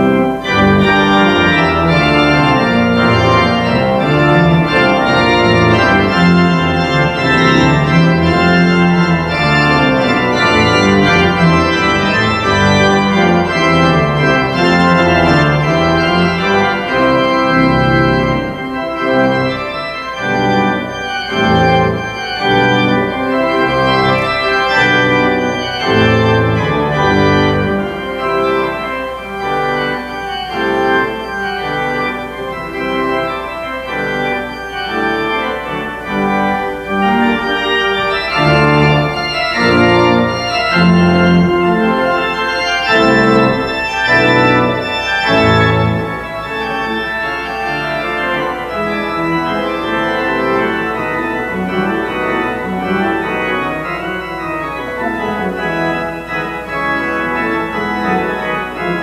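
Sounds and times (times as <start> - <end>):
organ playing chords: 0.0 - 59.0.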